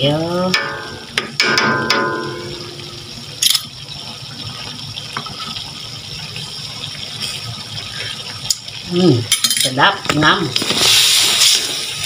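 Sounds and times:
sauce bubbling in a wok: 0.0s - 12.0s
utensil knocking on a wok: 0.4s - 3.0s.

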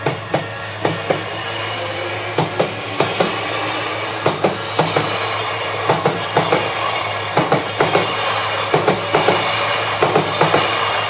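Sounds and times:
electric train passing: 0.0s - 11.0s
wheels clacking on rail joints: 4.2s - 10.9s.

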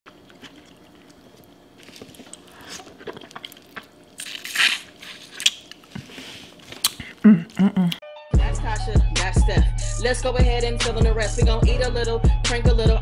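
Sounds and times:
wet squishing and dripping: 0.1s - 6.0s
mouth smacks and chewing: 0.2s - 6.0s, 6.6s - 8.0s
loud bite into shrimp: 4.2s - 5.7s.

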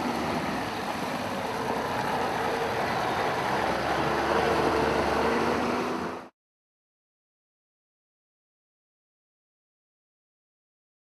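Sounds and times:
engine running steadily: 0.0s - 6.3s.

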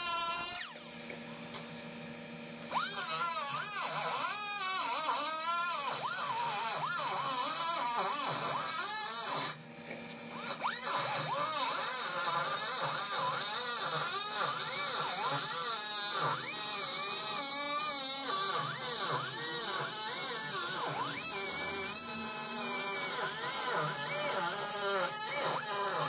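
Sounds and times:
cutoff tool cutting sheet metal: 10.4s - 26.0s.

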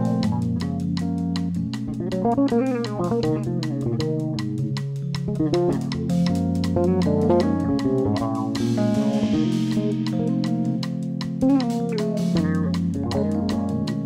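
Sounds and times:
drum kit cymbals: 0.0s - 14.0s
electric bass guitar: 0.0s - 14.0s
piano runs: 5.8s - 14.0s.

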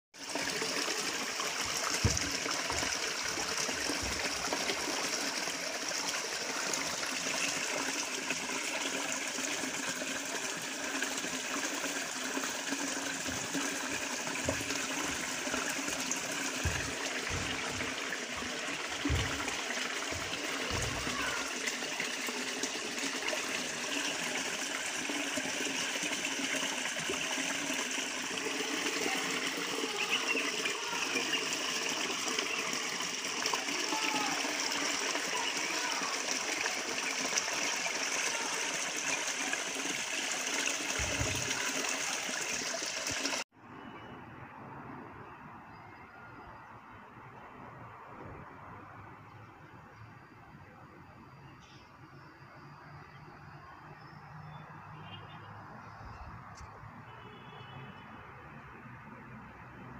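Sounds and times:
water gushing into plastic bucket: 0.2s - 43.4s.

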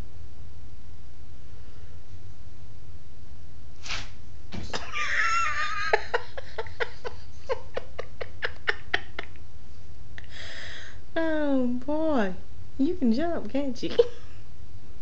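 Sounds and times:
woman laughing: 4.6s - 9.4s.

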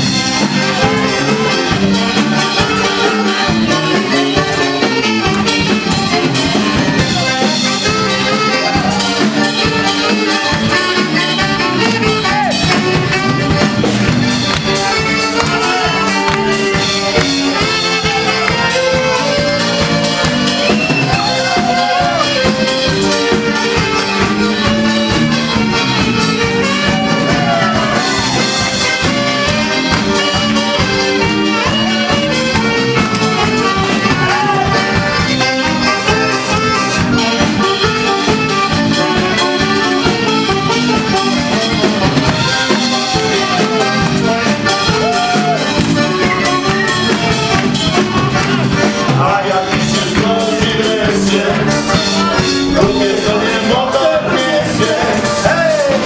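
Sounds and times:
accordion and saxophone dance music: 0.0s - 56.0s.

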